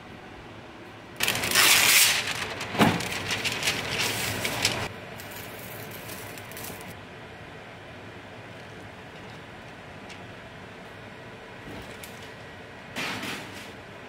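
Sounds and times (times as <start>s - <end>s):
lining sheet crinkling: 1.2s - 7.0s.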